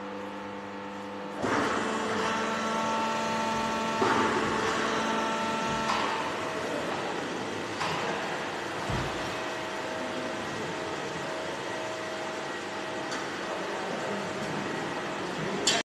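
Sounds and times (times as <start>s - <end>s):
machinery humming: 0.0s - 15.8s.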